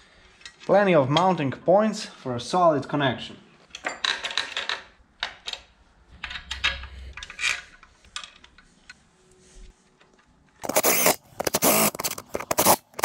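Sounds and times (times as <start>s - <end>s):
cordless power driver running: 10.6s - 13.0s.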